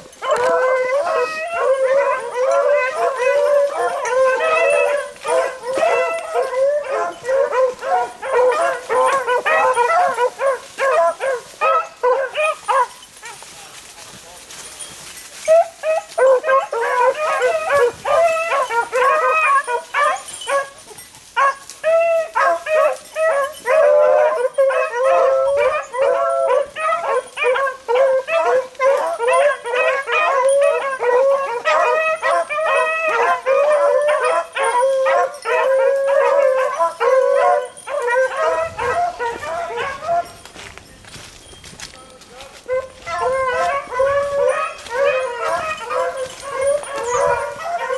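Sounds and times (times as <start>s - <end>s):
dogs baying: 0.0s - 13.5s, 15.4s - 41.3s, 42.5s - 47.9s.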